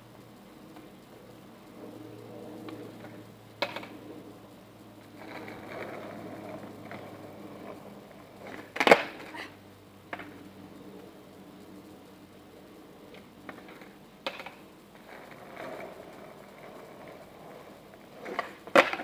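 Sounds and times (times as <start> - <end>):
skateboard wheels rolling on asphalt: 0.0 - 19.0
skateboard clattering down: 2.6 - 4.1, 5.2 - 9.4, 10.1 - 10.4, 13.1 - 19.0
skateboard tail snapping: 3.6 - 3.9, 8.4 - 9.3, 13.5 - 14.6, 18.2 - 19.0.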